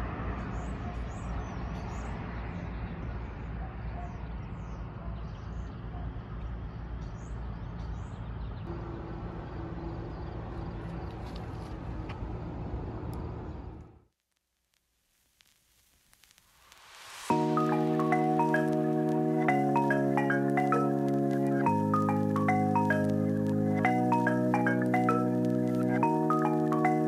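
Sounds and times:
road traffic noise: 0.0s - 14.0s, 17.3s - 27.0s
steady hum: 8.7s - 11.2s.

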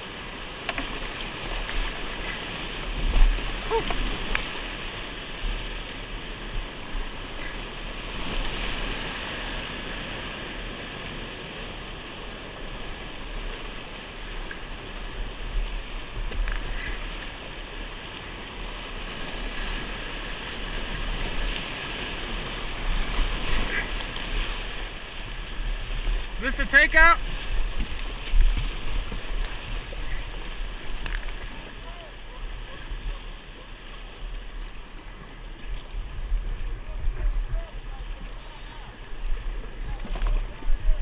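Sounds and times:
paddle splashes: 0.0s - 41.0s
whitewater rapids rushing: 19.7s - 34.4s.

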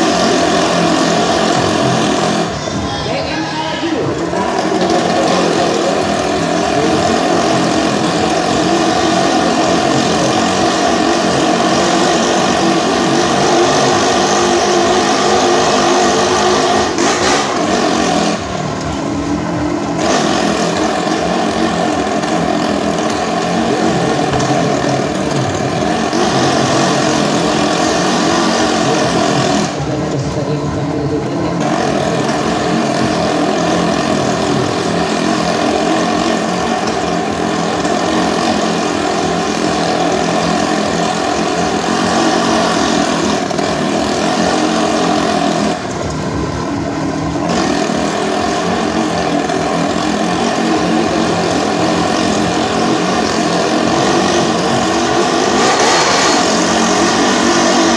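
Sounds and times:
motorcycle engine revving high: 0.0s - 57.9s.

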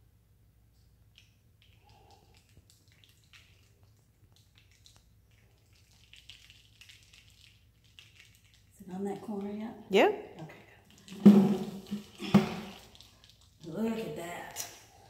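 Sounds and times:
low room hum: 0.0s - 6.8s
paint dripping onto plastic: 0.7s - 15.0s.

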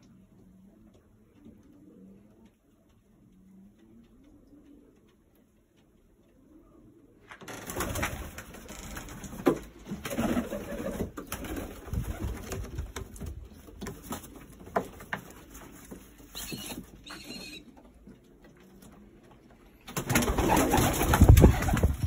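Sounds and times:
pigeons cooing: 0.0s - 7.2s, 16.2s - 22.0s
rustling noise with clicks: 7.2s - 22.0s.

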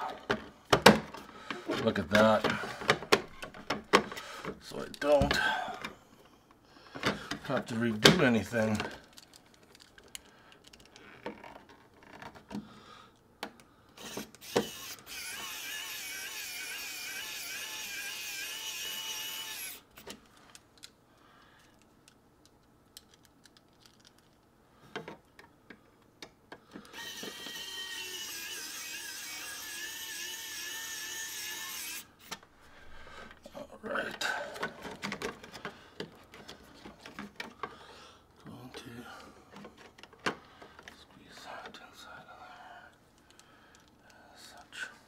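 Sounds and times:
electric screwdriver whining: 14.0s - 19.9s, 26.9s - 32.2s.

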